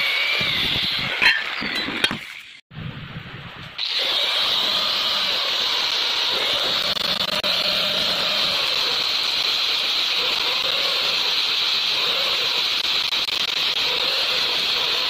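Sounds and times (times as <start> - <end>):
angle grinder sanding metal pipe: 3.8 - 15.0.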